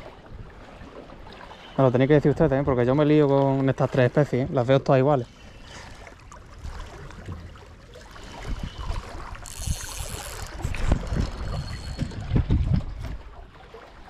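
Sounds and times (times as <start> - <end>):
wind buffeting microphone: 8.2 - 13.6.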